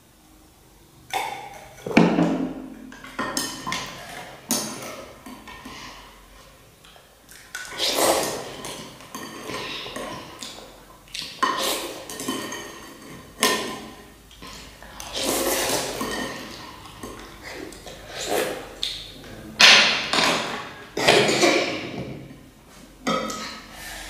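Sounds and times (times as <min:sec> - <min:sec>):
spoon and chopsticks clinking bowls: 0:15.2 - 0:17.2.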